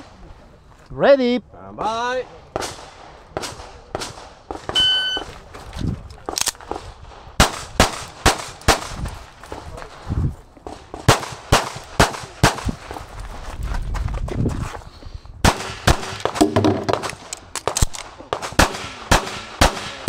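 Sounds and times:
pistol firing rapid shots: 7.4s - 8.9s, 11.0s - 12.6s, 15.4s - 20.0s.

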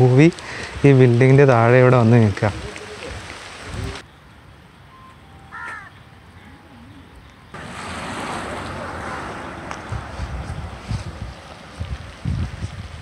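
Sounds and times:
heavy rain hissing: 0.0s - 4.1s, 7.6s - 13.0s
bird call: 5.0s - 7.2s.

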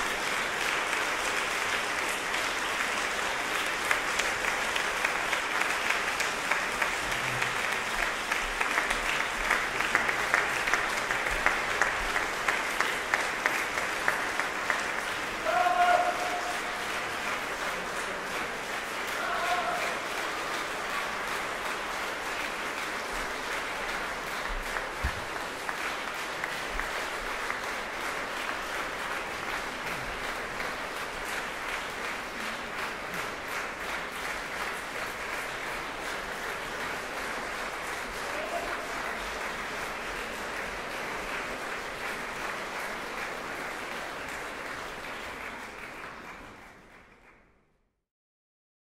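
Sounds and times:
audience applauding: 0.0s - 47.7s.

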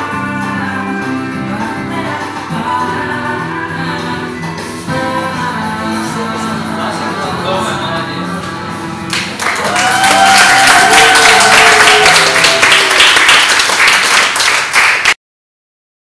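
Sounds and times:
applause with cheering: 9.1s - 15.2s.

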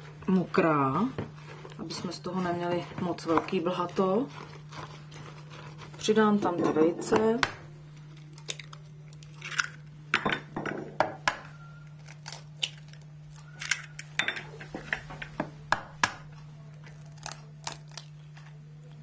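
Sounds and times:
eggshells cracking against bowl: 7.4s - 10.0s, 12.0s - 14.2s.

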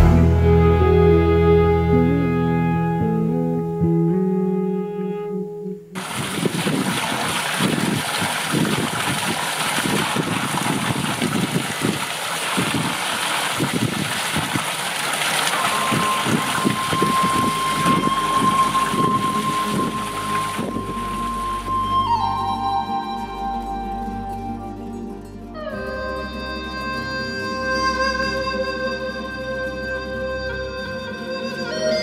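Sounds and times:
instrumental music: 0.0s - 6.0s, 15.5s - 32.0s
fountain water splashing into basin: 6.0s - 22.5s
held high note: 15.5s - 32.0s.

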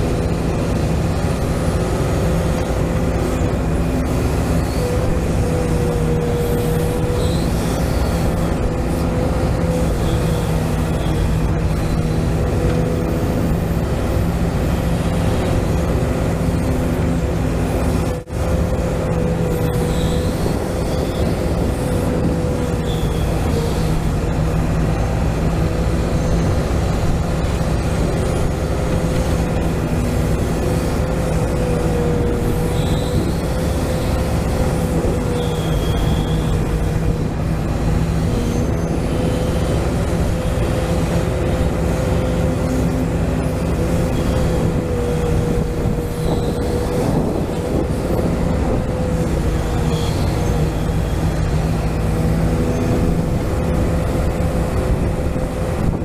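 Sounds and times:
hydraulic pump whine: 0.0s - 56.0s.

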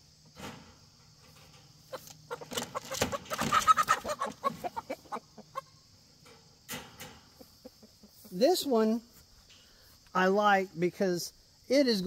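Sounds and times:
chickens clucking and squawking: 0.6s - 10.0s.

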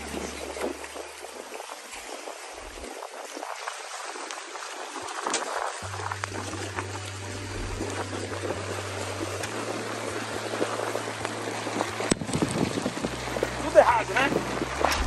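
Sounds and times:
water splashing against boat hull: 0.0s - 15.0s
low steady hum: 5.8s - 15.0s.

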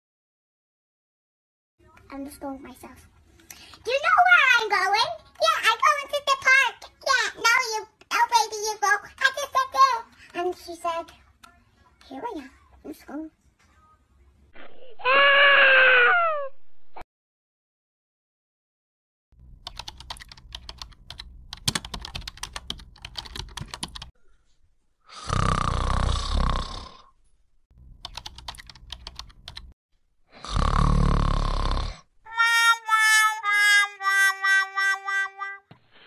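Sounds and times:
computer keyboard typing: 19.6s - 24.1s, 28.0s - 29.8s
loud snore: 25.1s - 27.2s, 30.3s - 32.1s.

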